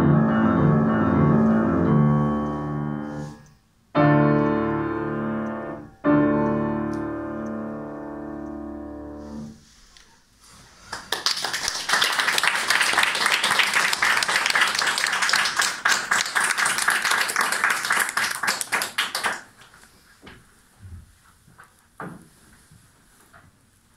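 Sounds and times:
audience applauding: 0:10.9 - 0:19.7.

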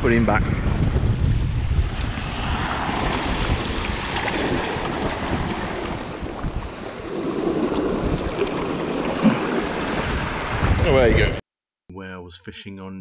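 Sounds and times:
wind buffeting microphone: 0:00.0 - 0:11.4
surf washing around rocks: 0:00.6 - 0:11.4.

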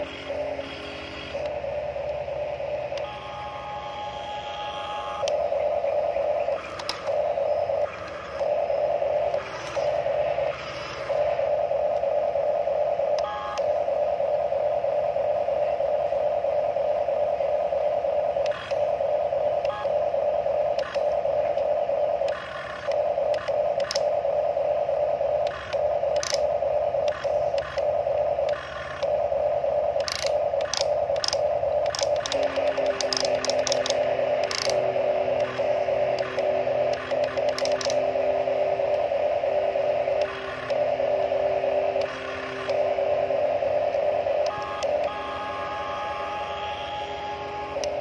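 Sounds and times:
electric motors whining: 0:00.0 - 0:48.0.

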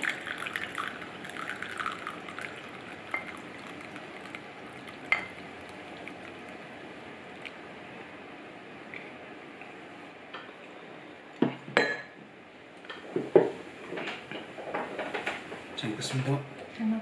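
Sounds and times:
tea pouring into cup: 0:00.0 - 0:06.6.

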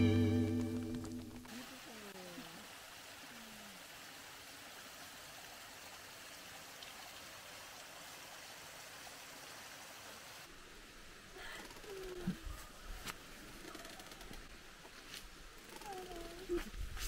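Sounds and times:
faint rushing water: 0:00.9 - 0:14.8.

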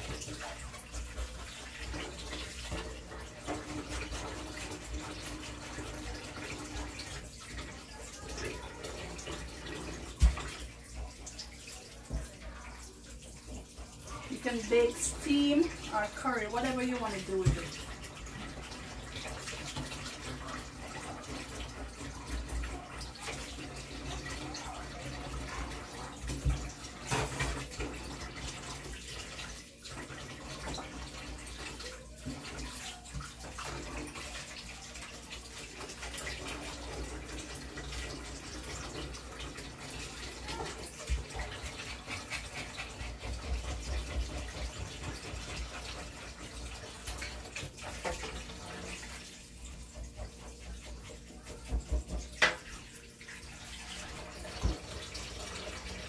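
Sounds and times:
tap water running into sink: 0:00.0 - 0:56.0.

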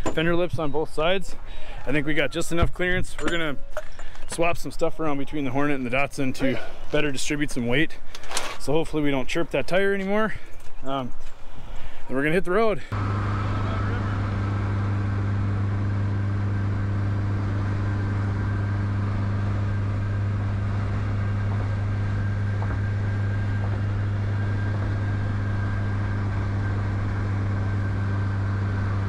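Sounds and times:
car engine drone: 0:12.9 - 0:29.0
road noise: 0:12.9 - 0:29.0.

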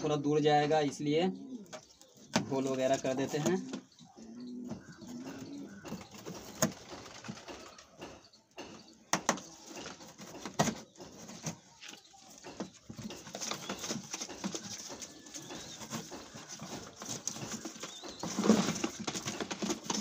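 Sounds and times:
pigeons cooing: 0:00.8 - 0:08.7, 0:09.4 - 0:20.0.

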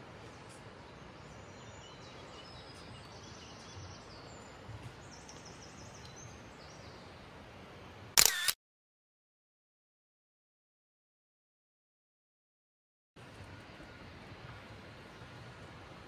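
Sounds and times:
small birds singing: 0:00.2 - 0:07.3.

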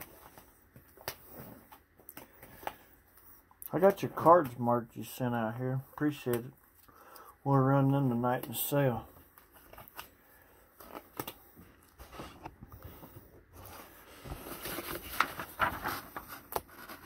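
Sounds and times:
paper sheet rustling: 0:10.8 - 0:17.0.

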